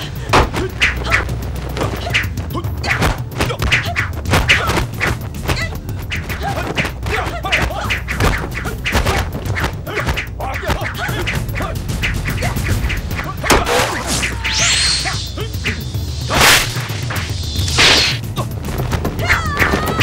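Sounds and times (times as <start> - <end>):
background music: 0.0 - 20.0
punches kicks and thuds: 0.3 - 0.7, 3.0 - 5.7
people yelling: 19.2 - 20.0.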